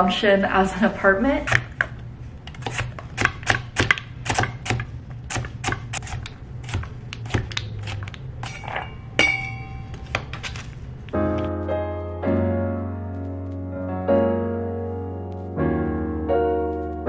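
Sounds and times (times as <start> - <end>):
knife chopping on plastic board: 2.6 - 8.1.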